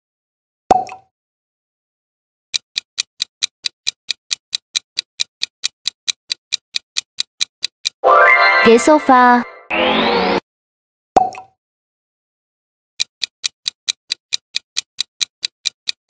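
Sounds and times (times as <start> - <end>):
countdown timer ticking: 2.6 - 9.4, 13.0 - 16.0.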